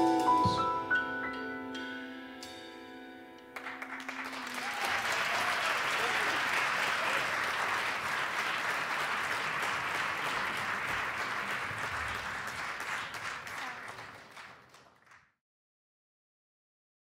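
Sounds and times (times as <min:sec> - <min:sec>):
audience applauding: 0:03.5 - 0:15.3.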